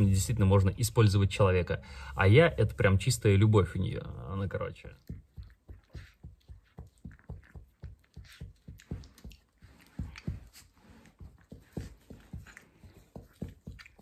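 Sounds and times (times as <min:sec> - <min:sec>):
dog licking ear: 0:04.9 - 0:14.0.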